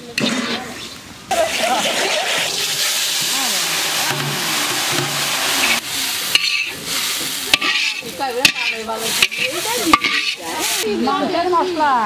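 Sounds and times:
hot spices sizzling in liquid: 0:00.1 - 0:12.0
metal ladle scraping a pan: 0:03.9 - 0:10.9.

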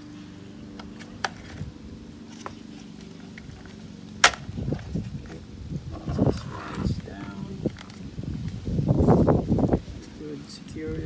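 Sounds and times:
steady low hum: 0:00.0 - 0:11.0
loud plastic clip snap: 0:04.2 - 0:04.5.

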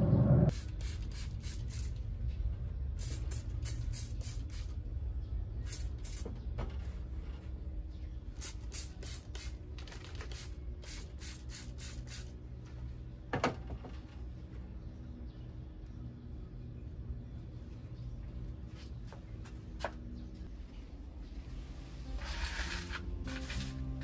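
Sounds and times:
steady low hum: 0:00.0 - 0:09.8
spray bottle spraying: 0:00.5 - 0:02.0, 0:03.0 - 0:04.8, 0:08.4 - 0:09.6, 0:10.2 - 0:12.3.

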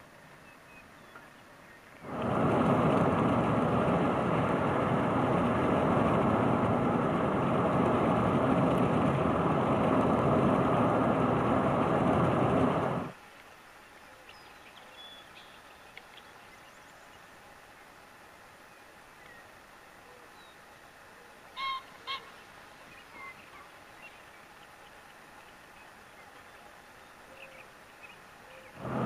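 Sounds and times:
car road and wind noise: 0:02.0 - 0:13.2, 0:28.8 - 0:29.0.

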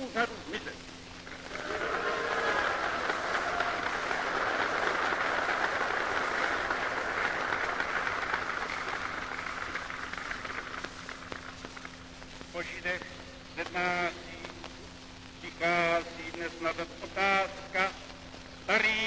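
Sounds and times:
recording hiss: 0:00.0 - 0:19.0
steady low hum: 0:00.0 - 0:19.0
crowd applauding and cheering: 0:01.2 - 0:12.1.

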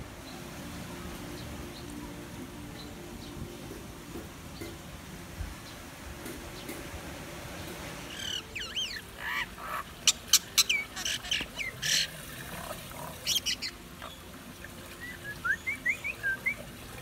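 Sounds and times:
myna bird calling: 0:08.1 - 0:14.3.

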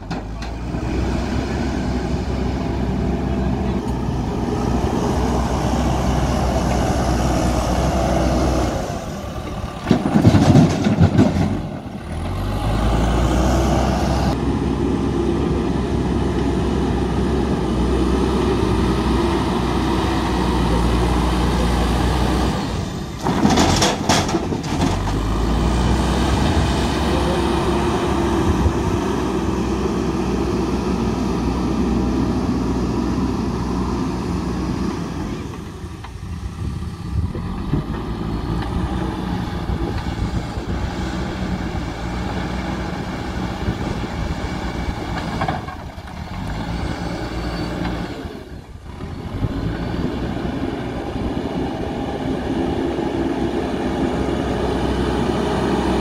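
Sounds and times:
diesel engines running: 0:00.0 - 0:56.0
stones clattering into trailer: 0:09.8 - 0:11.9, 0:23.2 - 0:25.2.

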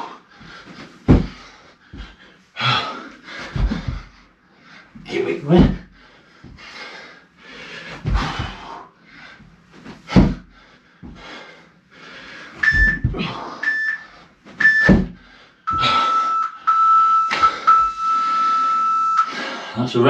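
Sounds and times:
hard breathing: 0:00.0 - 0:20.0
loud thumps: 0:01.0 - 0:01.4, 0:10.1 - 0:10.5, 0:12.6 - 0:13.4, 0:14.6 - 0:16.0
long low beep: 0:12.6 - 0:14.0, 0:14.6 - 0:15.0, 0:15.7 - 0:19.3
timer beeps: 0:12.6 - 0:15.0, 0:15.7 - 0:19.3.

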